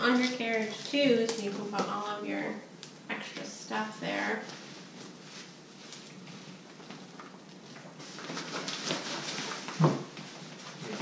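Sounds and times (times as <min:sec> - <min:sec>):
fabric canopy rustling: 0:04.0 - 0:11.0.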